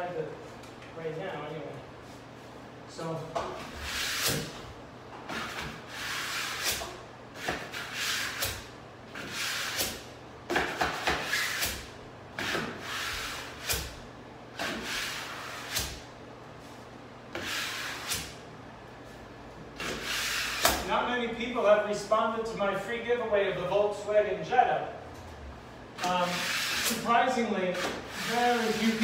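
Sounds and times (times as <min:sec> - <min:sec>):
wet towel wiping a surface: 0:28.1 - 0:29.0.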